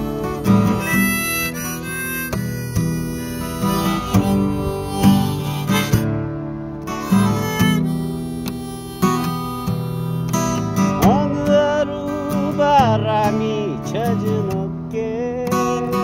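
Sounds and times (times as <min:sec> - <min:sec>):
harmonica melody: 0:00.0 - 0:14.6
acoustic guitar strumming: 0:00.0 - 0:16.0.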